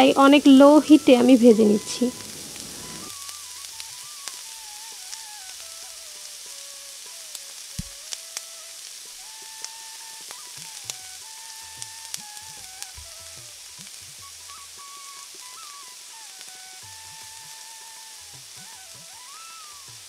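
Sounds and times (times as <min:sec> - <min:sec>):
background melody: 0:00.0 - 0:05.0
chicken deep-frying in oil: 0:00.0 - 0:20.0.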